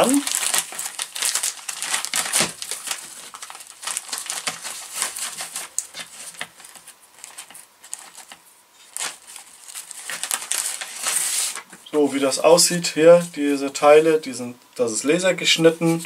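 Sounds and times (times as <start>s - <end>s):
plastic bag crinkling: 0.0s - 11.9s.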